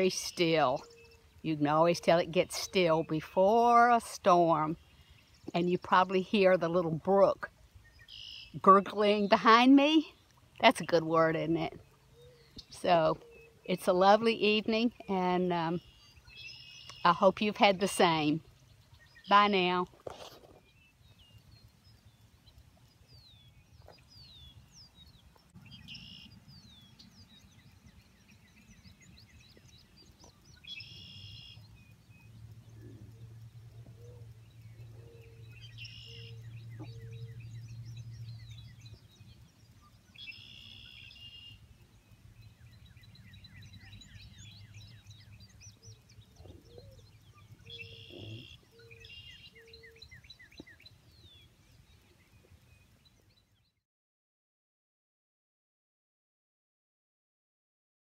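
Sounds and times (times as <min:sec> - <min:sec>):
birds singing and calling: 0:00.0 - 0:53.8
low steady rumble: 0:21.0 - 0:49.5.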